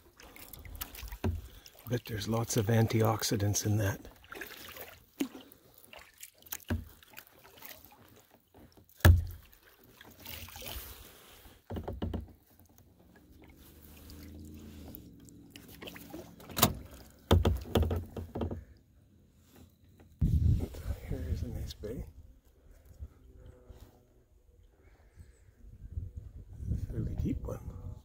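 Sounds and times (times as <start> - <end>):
paddle splashing in water: 0.0 - 18.8
sharp knocks: 9.0 - 9.3, 17.3 - 18.6.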